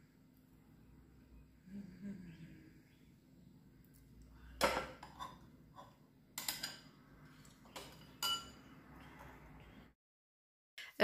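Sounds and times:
metal utensil clinking on glass: 4.9 - 6.9, 7.7 - 8.7.

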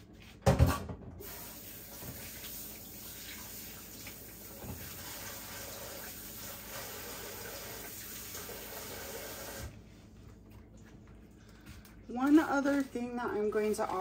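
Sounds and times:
water running from tap: 1.2 - 9.7.

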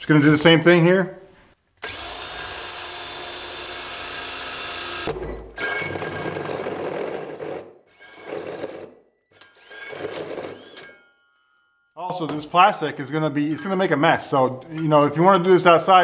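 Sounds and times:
cordless drill motor whirring: 1.8 - 6.0
hole saw cutting plastic: 1.8 - 11.0.

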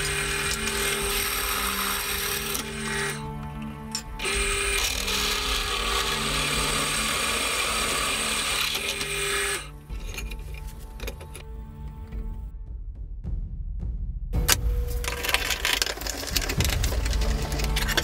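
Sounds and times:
drill bit grinding into metal: 0.0 - 11.3.

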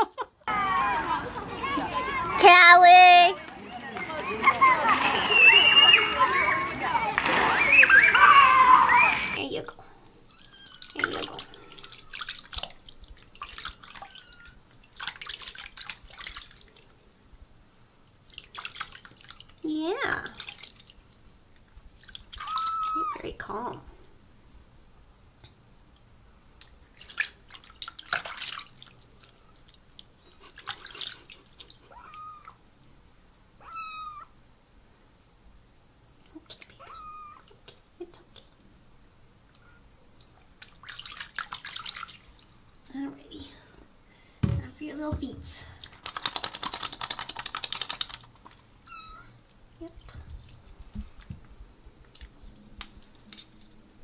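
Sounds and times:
water drips and splashes: 0.5 - 2.6, 3.2 - 23.2, 25.4 - 32.6, 39.5 - 43.0, 50.0 - 54.0
water splashing in sink: 4.0 - 9.4, 10.7 - 16.8, 18.3 - 19.5, 22.0 - 23.2, 26.9 - 29.4, 40.6 - 42.5, 45.2 - 48.4
kitten mewing: 31.9 - 32.6, 33.6 - 34.3, 36.4 - 37.5
fast patter of clicks: 45.8 - 48.6.

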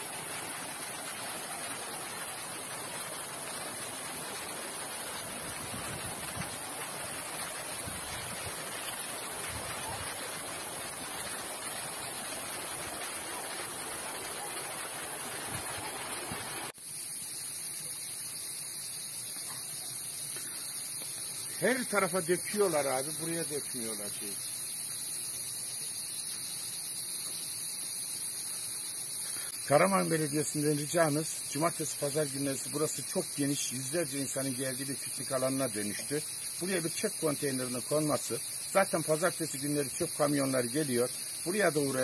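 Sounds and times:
river rushing over stones: 0.0 - 16.7
quiet outdoor background: 0.0 - 42.0.

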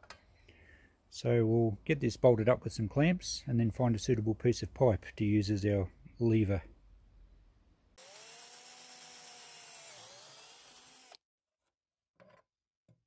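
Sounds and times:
power drill boring through wood: 8.0 - 11.2.

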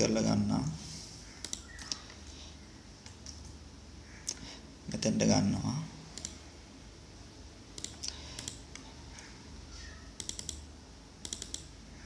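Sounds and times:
keyboard and mouse clicking: 1.4 - 2.2, 6.2 - 6.4, 7.8 - 9.3, 10.2 - 10.6, 11.2 - 11.7.

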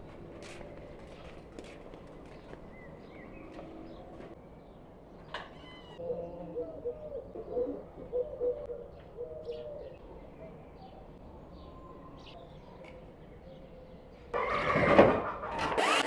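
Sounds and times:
dove cooing: 6.0 - 10.0.

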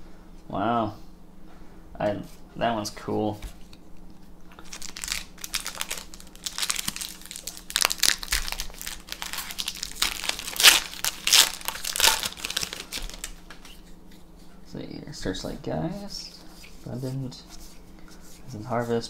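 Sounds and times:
foil wrapper tearing and crinkling: 4.6 - 13.5.

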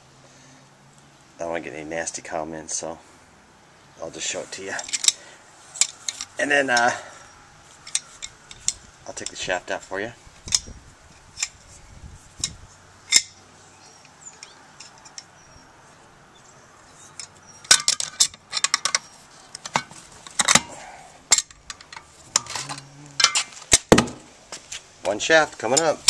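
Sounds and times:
metallic clinks of steel parts: 4.7 - 5.2, 7.8 - 9.4, 12.4 - 13.4, 16.9 - 23.6.

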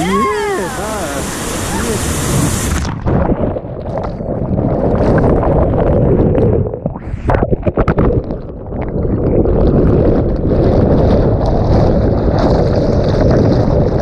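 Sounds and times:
underwater whitewater rumble: 0.0 - 14.0.

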